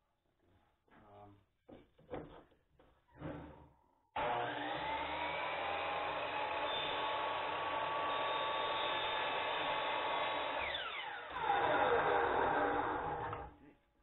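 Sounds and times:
miter saw cutting wood: 0:04.2 - 0:13.5.

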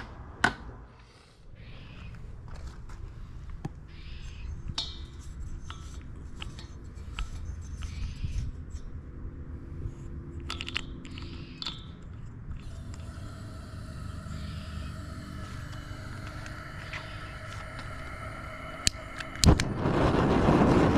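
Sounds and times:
metal fitting clicking and scraping: 0:04.2 - 0:09.0, 0:09.8 - 0:13.3
low rumble: 0:12.3 - 0:20.9.

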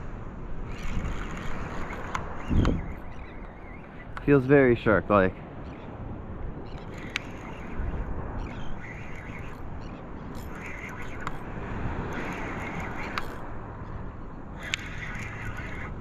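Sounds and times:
wind buffeting microphone: 0:00.0 - 0:16.0
sharp clicks: 0:00.7 - 0:04.3, 0:06.7 - 0:07.9, 0:10.3 - 0:11.4, 0:12.1 - 0:13.5, 0:14.6 - 0:15.6.

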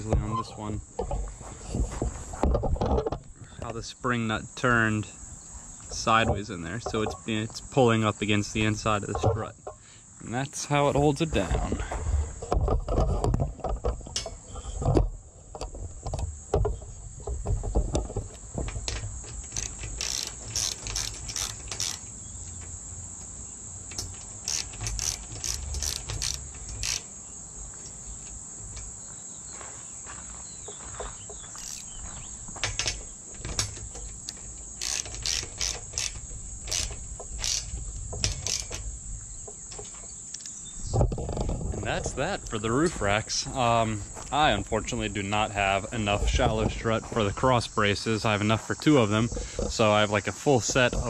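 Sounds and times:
high drone of insects: 0:00.0 - 0:51.0
socket ratchet clicking: 0:19.3 - 0:22.2, 0:23.9 - 0:27.1, 0:31.6 - 0:31.9, 0:33.6 - 0:38.8.

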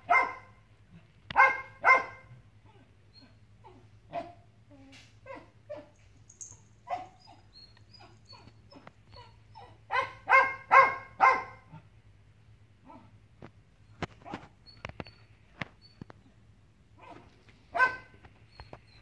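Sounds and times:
dog barking loudly: 0:00.0 - 0:00.6, 0:01.3 - 0:02.3, 0:09.8 - 0:11.8, 0:17.0 - 0:18.2.

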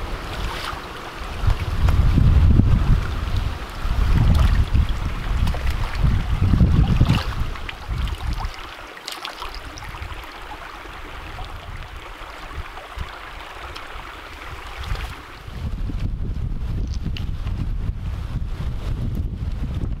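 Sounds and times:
wind buffeting microphone: 0:00.0 - 0:08.8, 0:09.5 - 0:20.0
creek running over stones: 0:00.0 - 0:15.6.

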